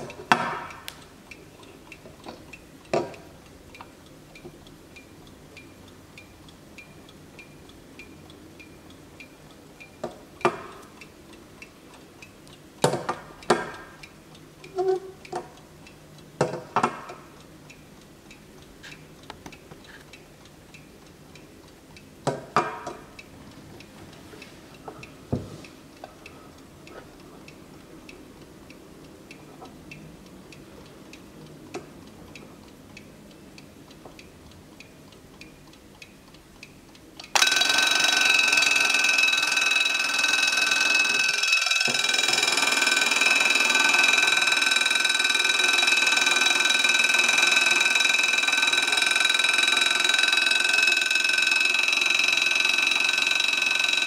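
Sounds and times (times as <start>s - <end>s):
clock ticking: 0.0s - 54.0s
alarm bell ringing: 37.4s - 54.0s.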